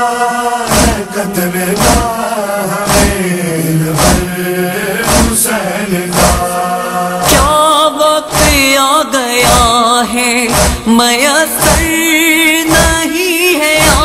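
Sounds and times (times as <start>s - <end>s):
male voices chanting drone: 0.0s - 14.0s
deep regular thud: 0.7s - 1.1s, 1.8s - 2.2s, 2.8s - 3.3s, 4.0s - 4.4s, 5.0s - 6.6s, 7.2s - 7.7s, 8.3s - 8.8s, 9.4s - 11.0s, 11.6s - 12.1s, 12.7s - 13.1s, 13.8s - 14.0s.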